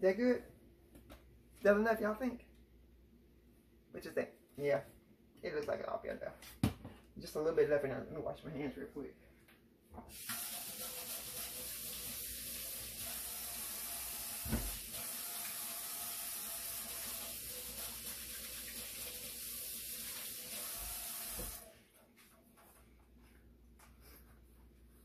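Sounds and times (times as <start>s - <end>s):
tap water running: 10.0s - 21.7s.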